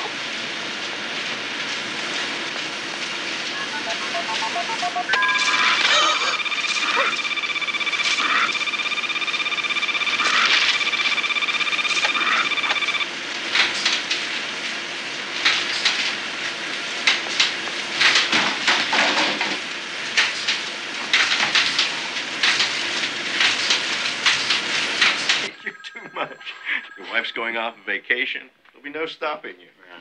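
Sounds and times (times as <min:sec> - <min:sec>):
buzzing alarm tone: 0:03.3 - 0:14.3, 0:24.8 - 0:28.1.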